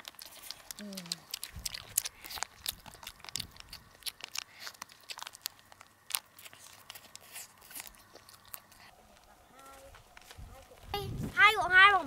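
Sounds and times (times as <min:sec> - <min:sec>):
plastic wrapper crinkling: 0:00.0 - 0:08.9
person chewing food: 0:00.0 - 0:09.4.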